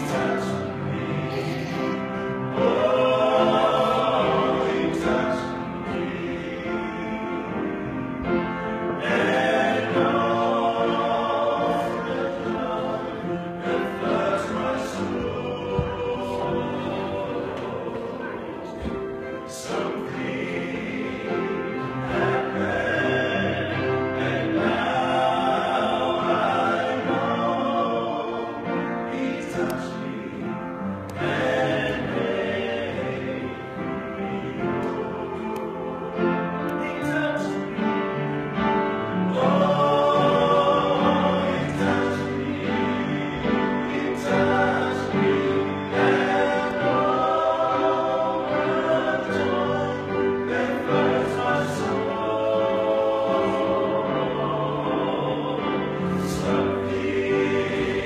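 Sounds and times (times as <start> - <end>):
men singing in harmony: 0.0 - 58.0.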